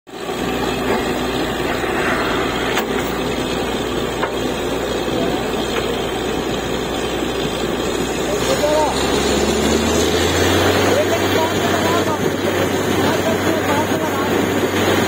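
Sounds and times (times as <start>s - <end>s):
drilling rig engine drone: 0.1s - 15.0s.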